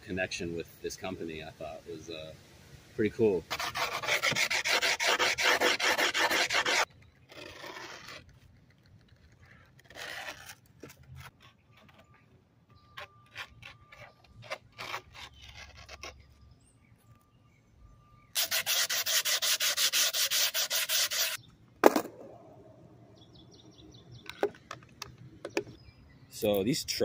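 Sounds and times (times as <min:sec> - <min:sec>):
palms rubbing grip tape: 0:03.4 - 0:12.2, 0:12.8 - 0:16.4, 0:18.4 - 0:21.4
grip tape scrapes: 0:03.5 - 0:12.1, 0:12.9 - 0:16.4, 0:18.4 - 0:21.4.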